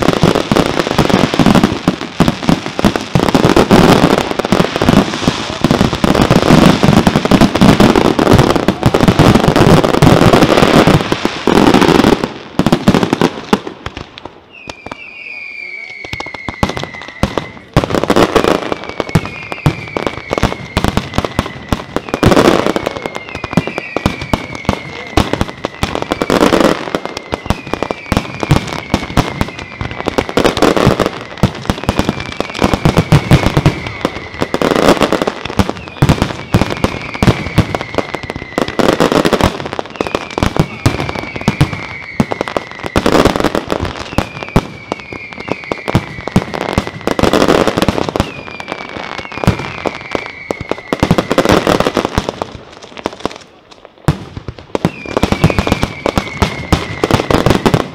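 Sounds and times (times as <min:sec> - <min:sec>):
fireworks crackling and banging: 0:00.0 - 0:57.9
falling whistle: 0:14.5 - 0:17.8, 0:18.5 - 0:35.1, 0:35.8 - 0:39.1, 0:39.9 - 0:47.4, 0:48.2 - 0:51.7, 0:54.8 - 0:57.6.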